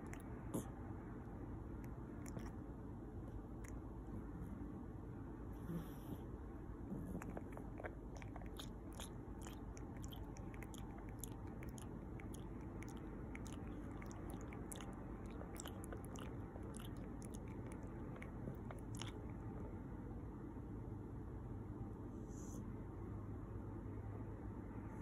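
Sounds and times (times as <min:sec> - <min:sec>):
puppy suckling wet clicks: 0:07.3 - 0:19.3.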